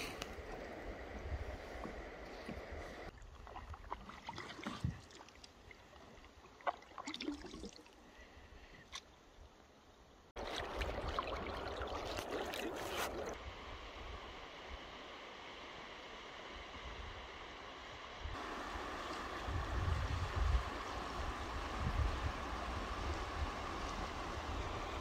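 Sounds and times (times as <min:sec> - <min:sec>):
wind rumbling on microphone: 0:00.0 - 0:03.9, 0:19.2 - 0:25.0
river water lapping: 0:00.0 - 0:09.2, 0:10.4 - 0:13.4
water splashes: 0:01.7 - 0:08.2, 0:10.4 - 0:13.4.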